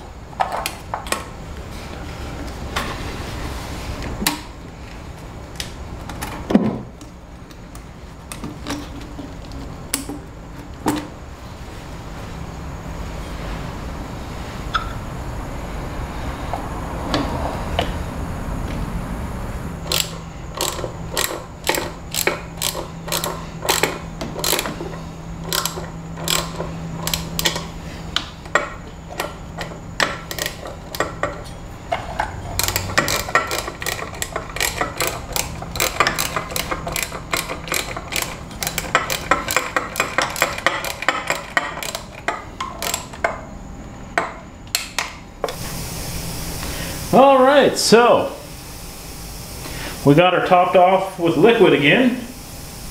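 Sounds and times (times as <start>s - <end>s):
hand ratchet clicking: 19.8s - 31.4s, 32.5s - 43.4s.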